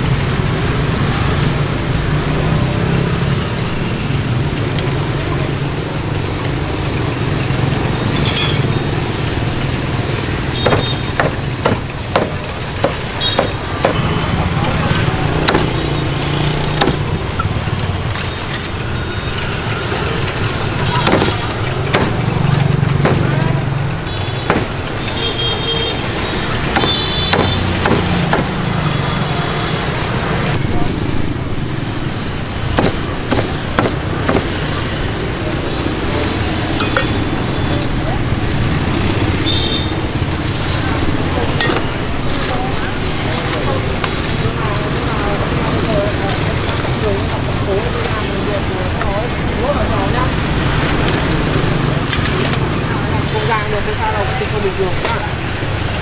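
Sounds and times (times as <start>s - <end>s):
street traffic noise: 0.0s - 56.0s
cleaver chopping on wooden block: 10.6s - 14.0s, 15.4s - 15.7s, 16.8s - 17.0s, 21.0s - 22.2s, 24.5s - 24.7s, 26.7s - 28.6s, 32.8s - 34.6s.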